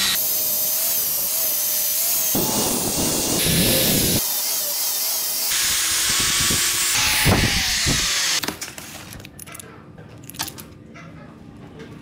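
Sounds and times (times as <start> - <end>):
angle grinder grinding steel: 0.0 - 8.4.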